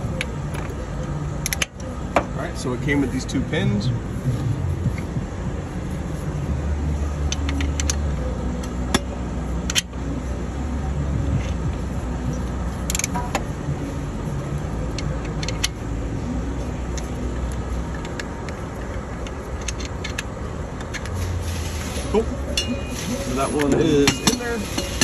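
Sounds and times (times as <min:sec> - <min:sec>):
low engine rumble: 0:00.0 - 0:25.0
metal tools clinking: 0:22.5 - 0:25.0.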